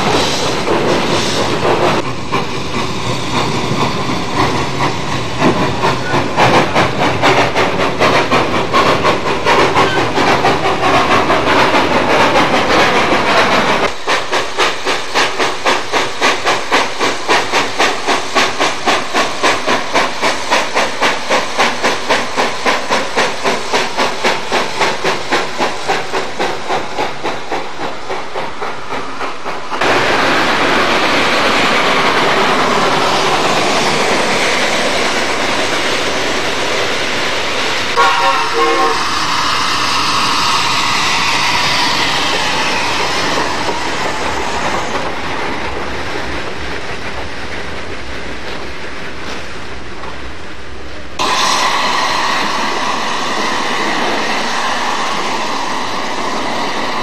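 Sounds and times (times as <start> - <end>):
steam locomotive exhaust chuffs: 0.0 - 49.4, 51.2 - 57.0
hissing steam: 0.0 - 57.0.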